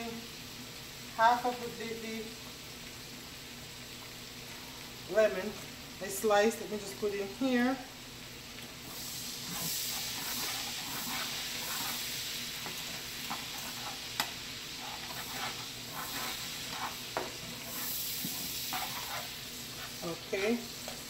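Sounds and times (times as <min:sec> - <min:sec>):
sauce sizzling in a skillet: 0:00.0 - 0:21.0
spatula scraping a skillet: 0:08.8 - 0:21.0.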